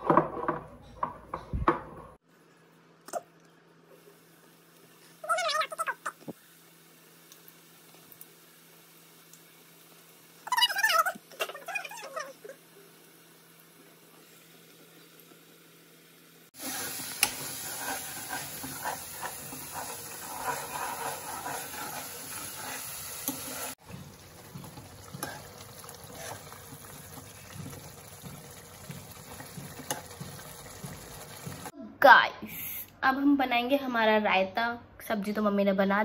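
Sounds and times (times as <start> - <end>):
food sizzling in a pan: 4.0 - 31.7
steel spoon scraping a pan: 16.6 - 23.8, 25.1 - 26.6.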